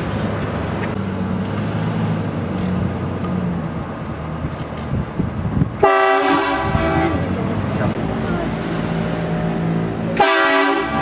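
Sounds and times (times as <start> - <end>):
pickup truck driving: 0.0 - 11.0
train horn blast: 5.8 - 7.3, 10.2 - 11.0.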